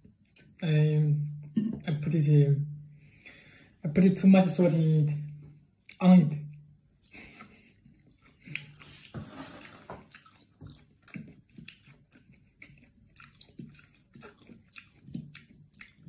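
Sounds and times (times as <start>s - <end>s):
person chewing: 5.8s - 16.0s.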